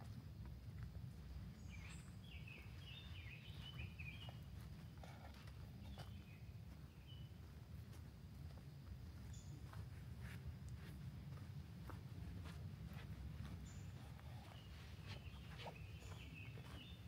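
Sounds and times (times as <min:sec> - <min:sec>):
soft footsteps on forest trail: 0:00.0 - 0:17.0
steady low rumble: 0:00.0 - 0:17.0
bird chirping: 0:01.4 - 0:07.5, 0:13.4 - 0:17.0.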